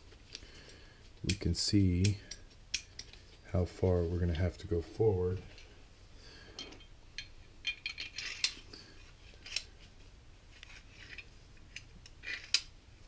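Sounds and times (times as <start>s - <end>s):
metal scraping: 10.5s - 12.7s.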